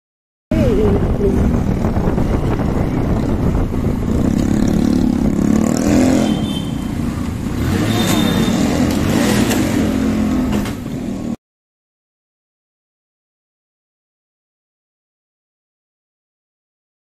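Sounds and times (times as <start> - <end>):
motorcycle engine running: 0.5 - 11.3.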